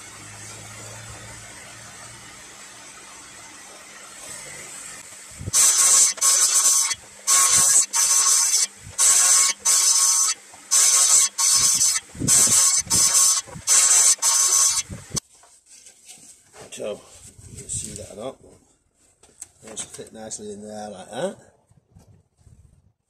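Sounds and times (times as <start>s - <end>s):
table saw cutting wood: 0.0s - 15.2s.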